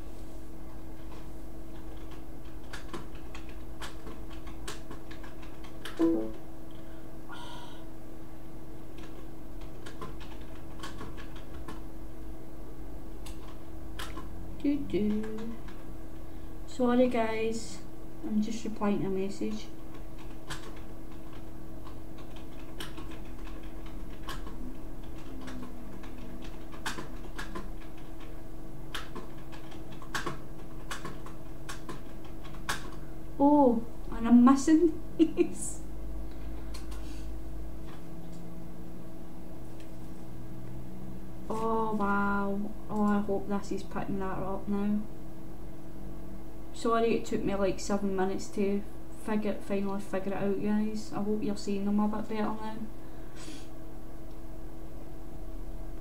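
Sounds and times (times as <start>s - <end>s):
low hum: 5.2s - 56.0s
pitched tone: 6.0s - 6.4s.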